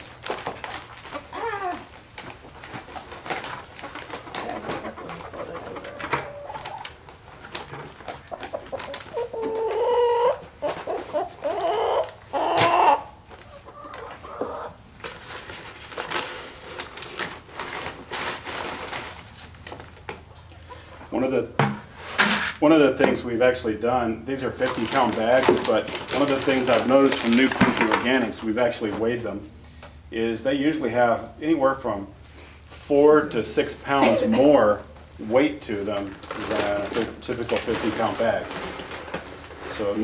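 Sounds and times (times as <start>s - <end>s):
hens clucking: 0.0s - 15.0s, 20.1s - 21.4s, 32.9s - 40.0s.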